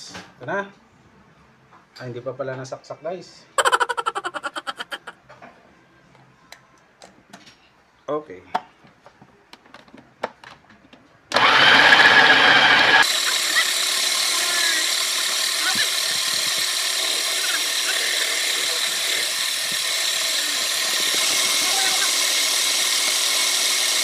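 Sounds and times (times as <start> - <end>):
food processor chopping: 11.3 - 24.0.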